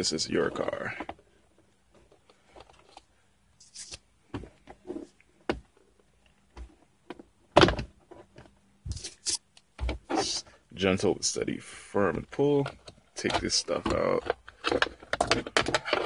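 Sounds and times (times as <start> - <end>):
loud plastic thunk: 7.6 - 7.9.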